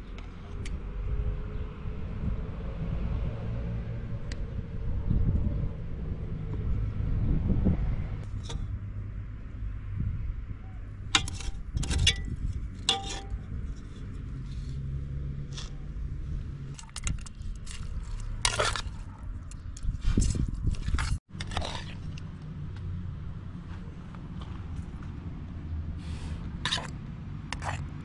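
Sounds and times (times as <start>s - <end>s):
metal spoon scraping pot: 11.2s - 14.2s, 16.8s - 22.2s, 26.6s - 27.9s.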